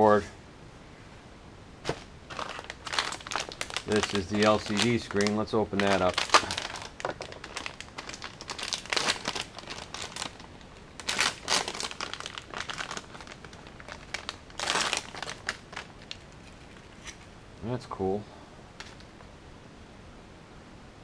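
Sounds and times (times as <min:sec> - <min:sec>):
plastic packaging crinkling: 0:01.9 - 0:17.3, 0:18.8 - 0:19.2.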